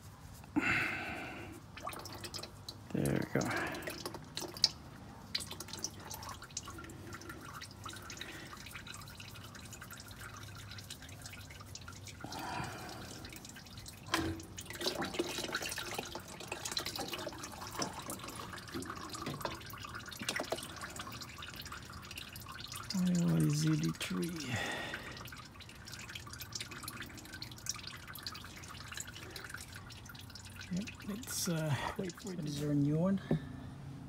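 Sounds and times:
oil dripping: 0:00.0 - 0:33.6.

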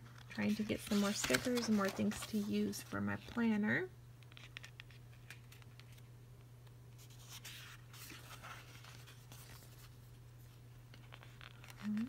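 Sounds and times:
page turning: 0:00.1 - 0:02.8, 0:07.0 - 0:10.0, 0:10.9 - 0:12.0
paper sheets rustling: 0:00.1 - 0:03.4, 0:07.0 - 0:12.0.

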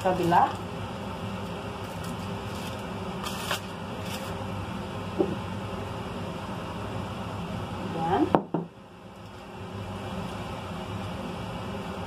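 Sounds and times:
aluminium foil rustling: 0:00.0 - 0:00.7, 0:01.4 - 0:04.5
low background hum: 0:00.0 - 0:12.0.

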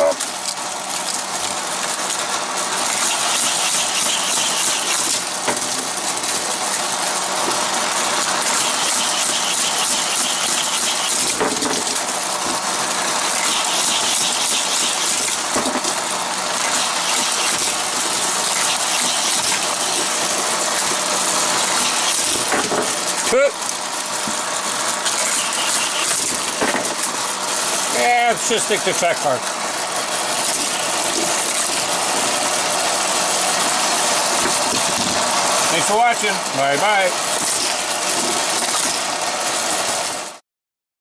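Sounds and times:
toy cars rattling on plastic track: 0:00.0 - 0:29.4
motorised track boosters whirring: 0:02.4 - 0:05.4, 0:06.4 - 0:11.4, 0:12.2 - 0:26.6.

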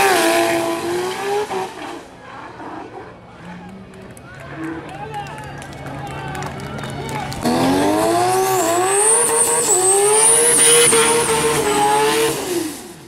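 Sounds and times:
car engine revving high: 0:00.0 - 0:03.9, 0:07.2 - 0:13.0
tires squealing: 0:00.0 - 0:12.9.

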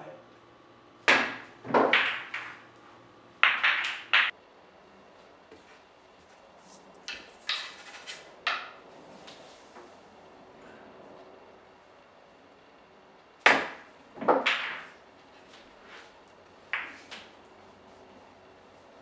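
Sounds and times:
pool balls clacking: 0:01.0 - 0:02.7, 0:03.4 - 0:04.3, 0:13.4 - 0:15.0, 0:16.6 - 0:17.4
cue striking ball: 0:01.1 - 0:02.7, 0:03.4 - 0:04.3, 0:08.5 - 0:08.8, 0:13.4 - 0:15.0, 0:16.7 - 0:17.3.

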